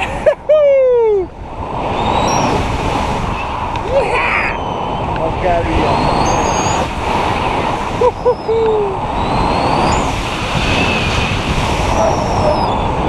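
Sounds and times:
wind rushing over microphone: 0.0s - 13.0s
person hooting and whooping: 0.2s - 1.3s, 8.0s - 9.1s.

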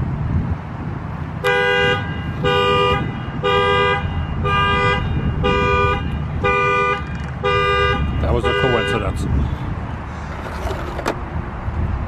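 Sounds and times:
car alarm horn honking: 1.4s - 9.2s.

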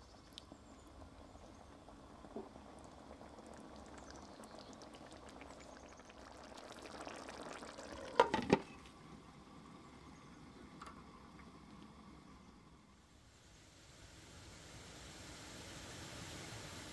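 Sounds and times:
stew bubbling in a pan: 0.0s - 12.4s.

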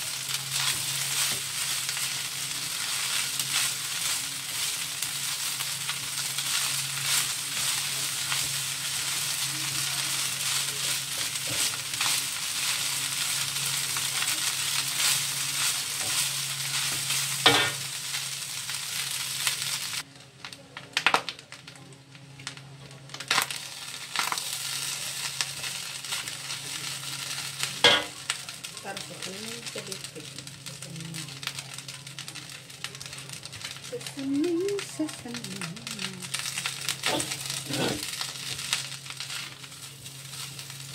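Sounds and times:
wooden spatula scraping wok: 0.0s - 18.3s, 36.4s - 40.9s
rice sizzling in a wok: 0.0s - 40.9s.

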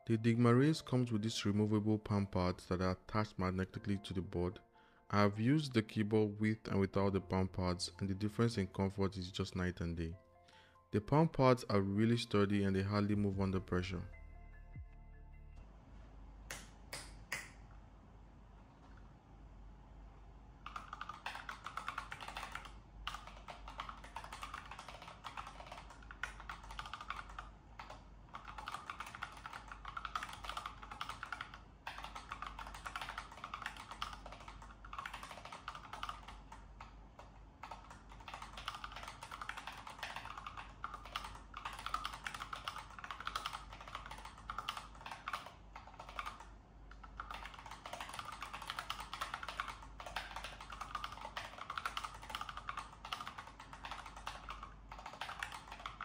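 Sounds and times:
mechanical keyboard typing: 20.6s - 56.0s.

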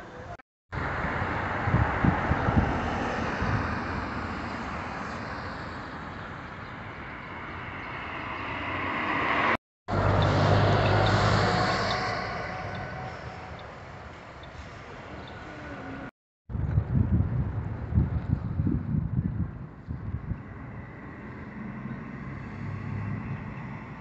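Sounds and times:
vehicle engine hum: 0.0s - 24.0s
cars passing: 0.8s - 16.1s, 20.0s - 24.0s.

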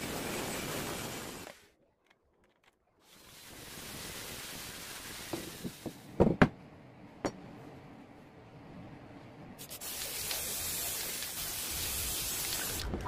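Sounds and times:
spray paint can hissing: 3.0s - 6.0s, 9.6s - 12.8s.

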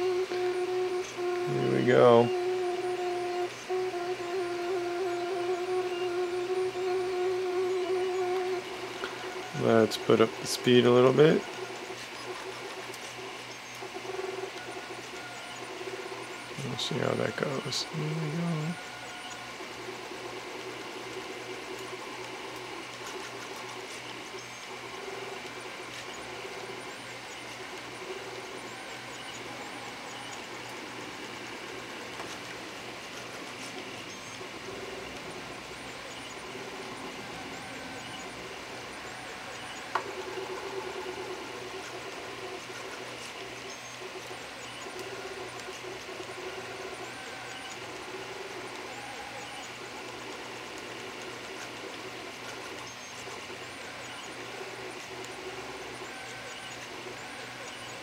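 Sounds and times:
low hum: 0.0s - 14.4s
stepper motors whirring: 0.0s - 58.0s.

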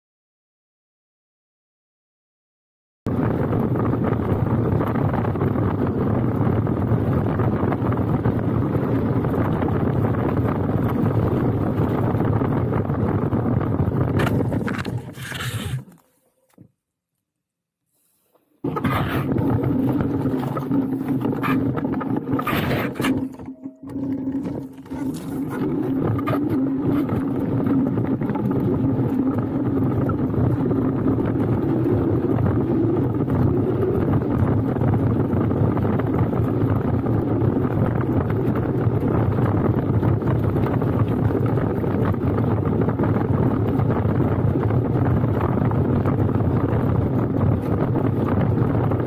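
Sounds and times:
wind over microphone: 3.1s - 16.1s, 18.6s - 49.0s
tyres rumbling on gravel: 14.0s - 16.1s, 18.7s - 30.5s.

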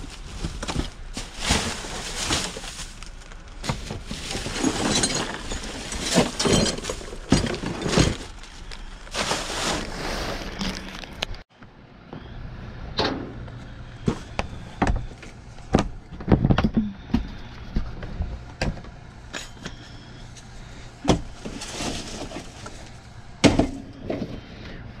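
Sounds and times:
plastic rustling: 0.0s - 11.4s, 21.4s - 23.0s
boxes thumping against metal dumpster: 3.6s - 8.4s, 23.4s - 24.2s.

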